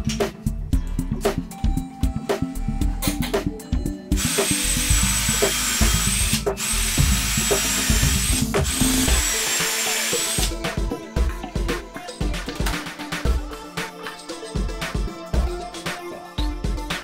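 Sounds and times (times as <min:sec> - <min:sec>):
cordless drill whining into wood: 0:04.2 - 0:10.6.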